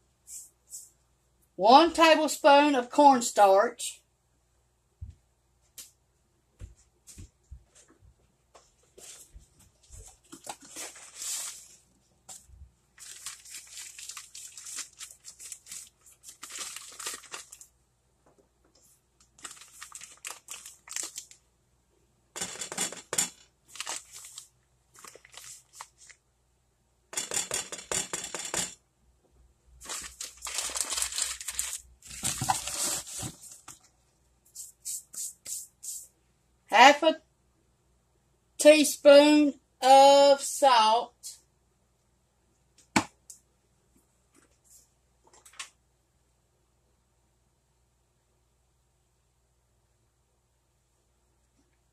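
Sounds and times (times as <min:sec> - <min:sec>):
bag crinkling and rustling: 0:10.1 - 0:11.8, 0:13.0 - 0:17.7, 0:19.4 - 0:21.4, 0:23.7 - 0:26.2, 0:29.8 - 0:33.9.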